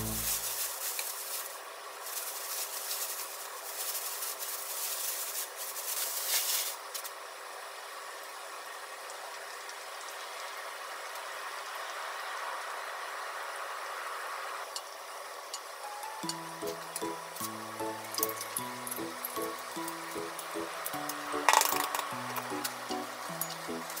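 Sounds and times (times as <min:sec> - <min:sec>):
plastic bag crinkling: 0:00.0 - 0:07.0, 0:17.1 - 0:24.0.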